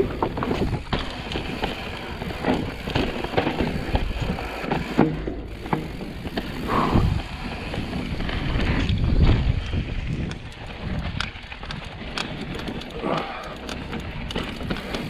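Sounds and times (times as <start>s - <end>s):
bike clicking and rattling: 0.0s - 15.0s
tyres rolling on dirt: 0.0s - 15.0s
wind rushing over microphone: 6.1s - 13.0s.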